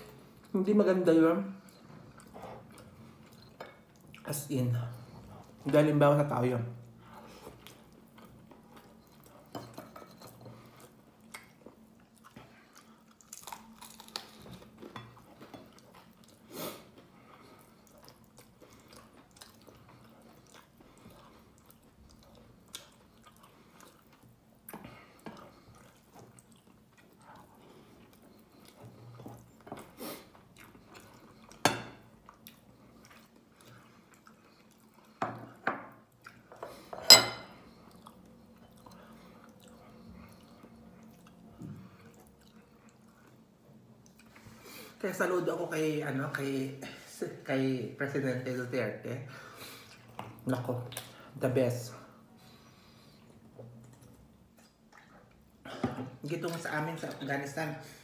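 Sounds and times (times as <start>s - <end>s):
chewing and mouth smacks: 10.2s - 31.6s, 32.2s - 35.2s, 36.1s - 36.6s, 37.7s - 44.5s, 53.2s - 55.6s.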